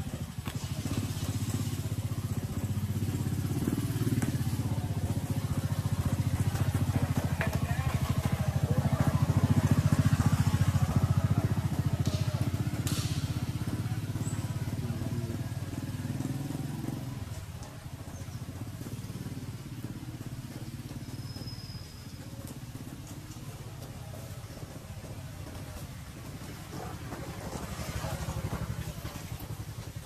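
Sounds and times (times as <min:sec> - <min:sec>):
small engine droning: 0:00.0 - 0:30.0.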